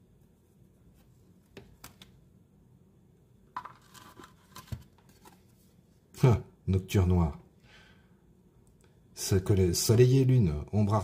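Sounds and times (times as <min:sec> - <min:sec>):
cards sliding and scraping: 0:03.6 - 0:05.6.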